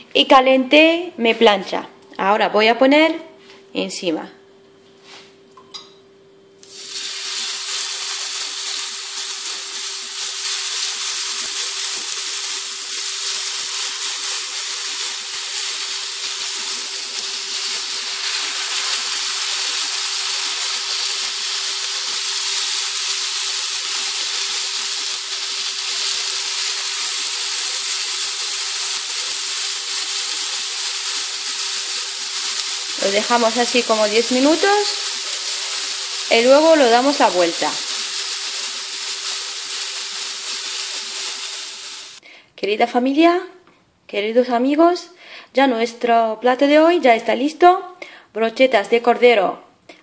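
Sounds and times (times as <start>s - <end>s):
meat sizzling on griddle: 6.6s - 42.2s.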